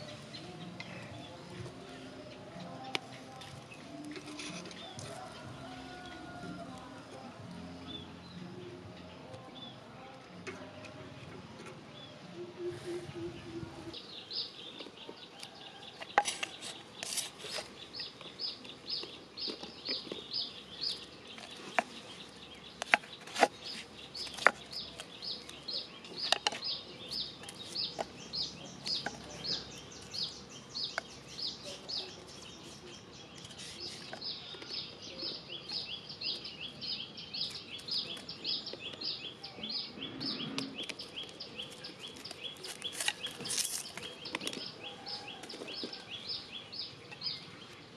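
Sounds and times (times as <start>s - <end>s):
knocks and clicks in a clay mortar: 21.3s - 30.2s.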